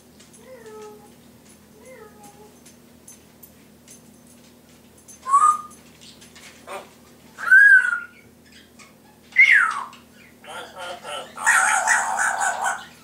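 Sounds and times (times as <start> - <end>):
parrot whistling: 5.3 - 5.7, 7.4 - 8.3, 9.4 - 10.0
parrot chirp: 7.4 - 13.0.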